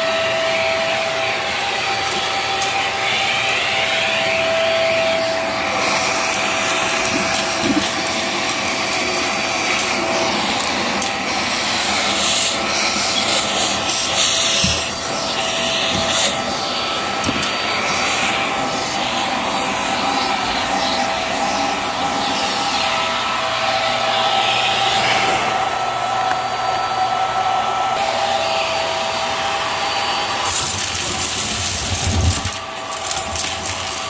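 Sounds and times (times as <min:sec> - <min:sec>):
vacuum cleaner running: 0:00.0 - 0:34.0
debris clicking in vacuum: 0:30.5 - 0:34.0.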